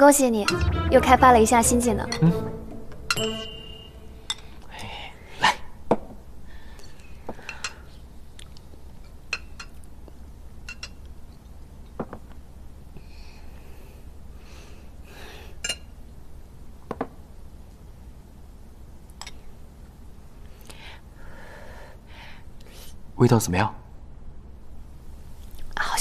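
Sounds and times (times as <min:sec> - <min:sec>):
low room hum: 0:00.0 - 0:26.0
utensils clinking on dishes: 0:10.6 - 0:11.0.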